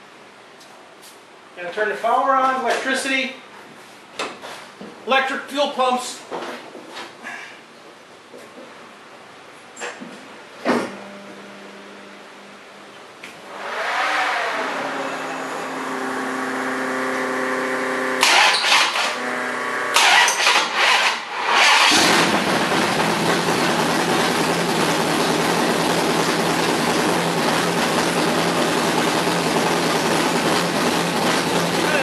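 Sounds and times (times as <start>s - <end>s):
engine firing in loud bursts: 13.5s - 32.0s
engine idling loudly: 14.4s - 32.0s
starter motor cranking: 18.2s - 19.2s, 19.9s - 23.1s.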